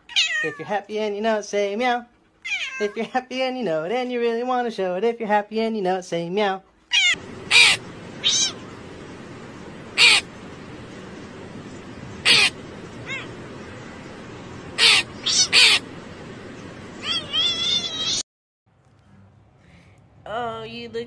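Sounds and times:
crow cawing: 7.2s - 8.8s, 9.8s - 10.6s, 12.1s - 13.9s, 14.7s - 16.0s
steady background noise: 7.2s - 18.2s.

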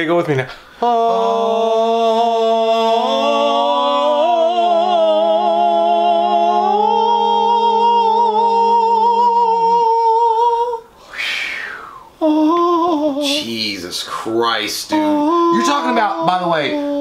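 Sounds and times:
men singing in harmony: 0.8s - 10.9s, 14.8s - 17.0s
breathy rush of noise: 10.8s - 12.3s.

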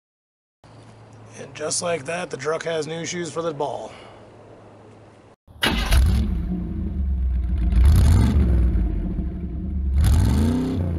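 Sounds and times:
engine revving: 5.6s - 10.9s.

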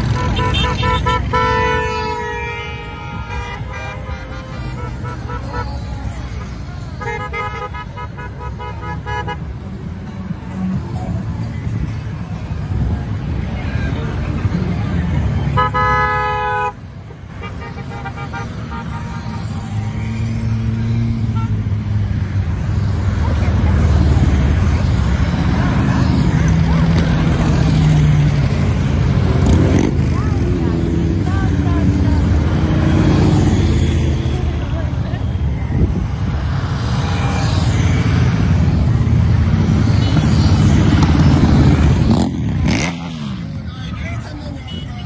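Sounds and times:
motorcycles riding past: 17.0s - 45.0s.

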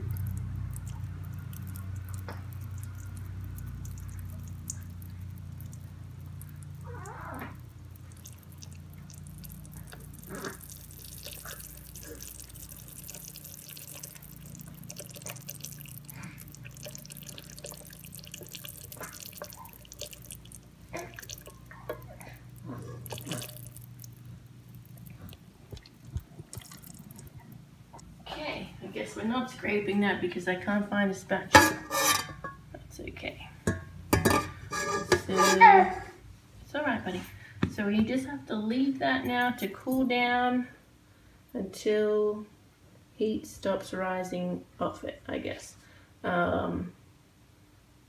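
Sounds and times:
syrup trickling into metal bowl: 0.0s - 6.8s, 7.6s - 27.4s
steady low hum: 0.0s - 39.7s.

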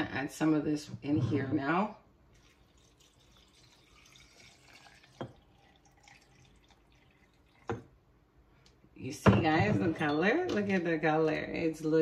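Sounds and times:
liquid pouring into glass jar: 2.3s - 8.0s.

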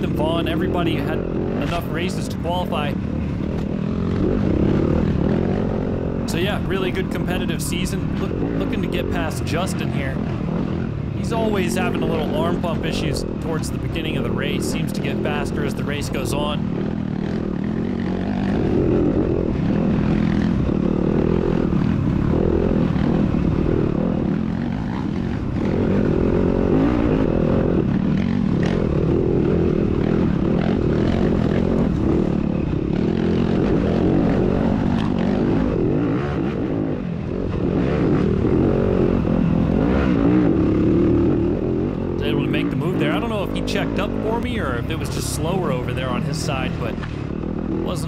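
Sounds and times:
motorcycle engine revving: 0.0s - 48.0s.

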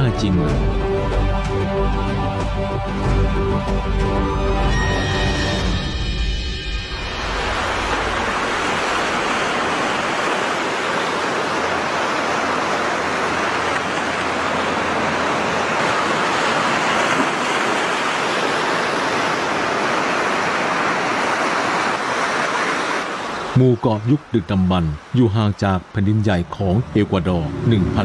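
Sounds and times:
ocean surf breaking on beach: 6.8s - 28.0s.

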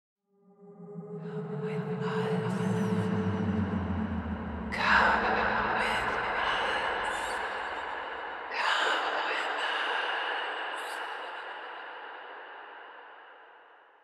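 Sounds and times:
low drone: 0.3s - 8.7s
breathy swells of noise: 0.4s - 13.2s.

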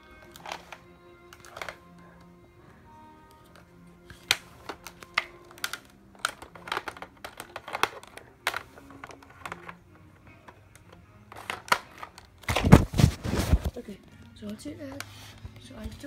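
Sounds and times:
hard plastic parts clicking: 0.2s - 2.3s, 3.3s - 13.7s.

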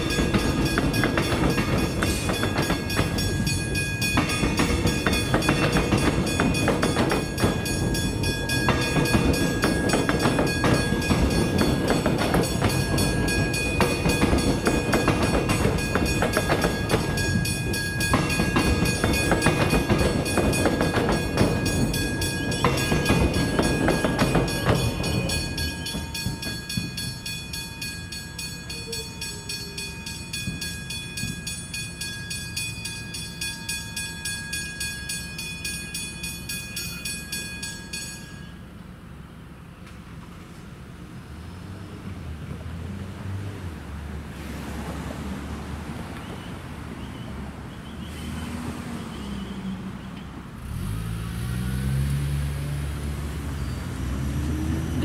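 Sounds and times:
train wheels clattering over rail joints: 0.0s - 38.4s
crossing bells ringing: 0.0s - 39.3s.

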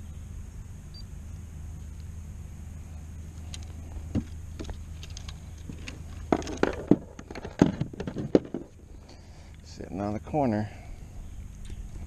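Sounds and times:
steady low rumble: 0.0s - 12.0s
handling clicks and rattles: 3.5s - 8.8s.

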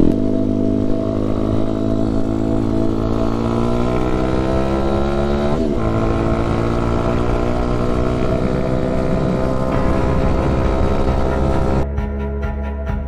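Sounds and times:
motorbike engine accelerating: 0.0s - 11.8s.

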